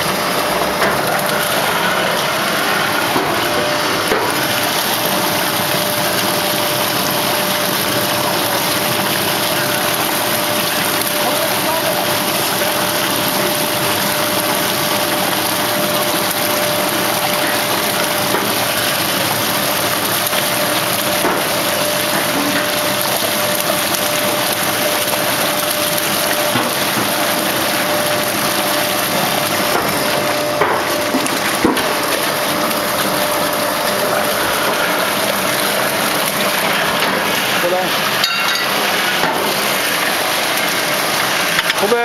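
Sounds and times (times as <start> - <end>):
machinery rushing noise: 0.0 - 6.0.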